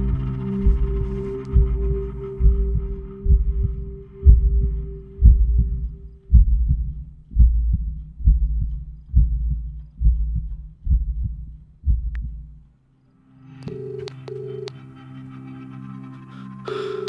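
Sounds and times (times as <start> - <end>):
heartbeat thuds: 0.0 - 12.7
low drone: 0.0 - 17.0.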